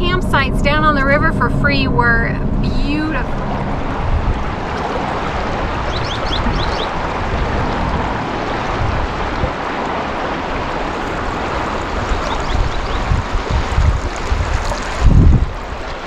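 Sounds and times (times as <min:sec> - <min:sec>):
wind buffeting microphone: 0:00.0 - 0:16.0
river rushing over stones: 0:03.4 - 0:16.0.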